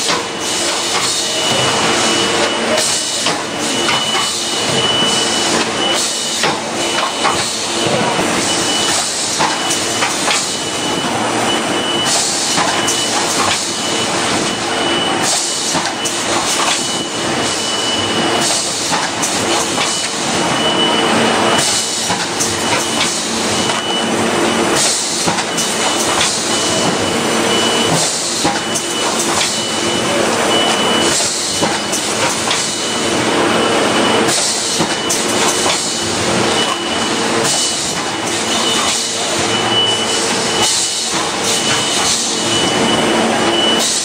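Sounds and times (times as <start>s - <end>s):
machine clatter and hum: 0.0s - 44.0s.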